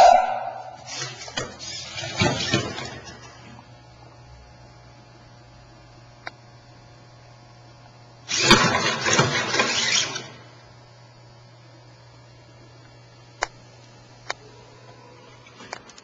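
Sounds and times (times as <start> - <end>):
low steady hum: 0.0 - 1.0
robot dog motor burst: 8.3 - 10.3.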